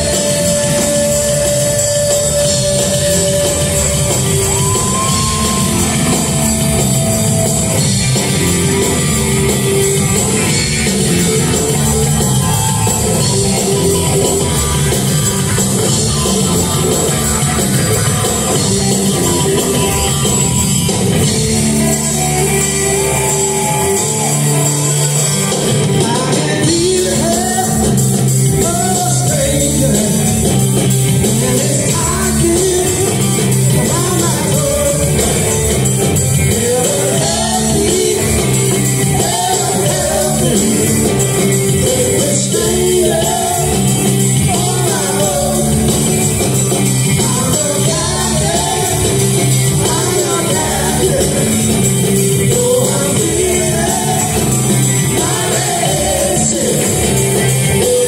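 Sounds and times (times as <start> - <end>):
live rock band playing: 0.0 - 58.0
person singing: 0.0 - 58.0.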